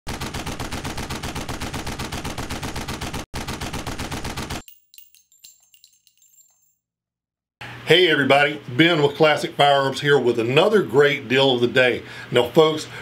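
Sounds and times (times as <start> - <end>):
automatic machine-gun fire: 0.1 - 4.6
light metallic clinks: 4.6 - 6.8.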